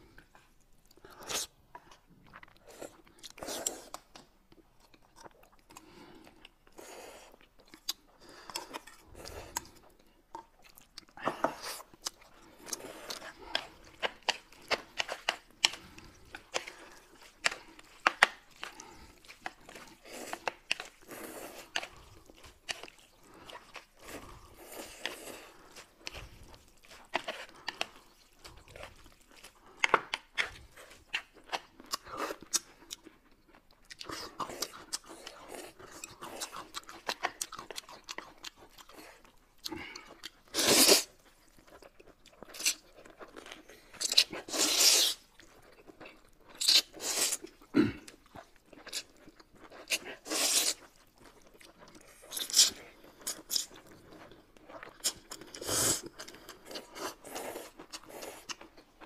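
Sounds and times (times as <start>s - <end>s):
people chewing noodles: 0.0s - 59.0s
slurp of noodles: 44.5s - 45.2s.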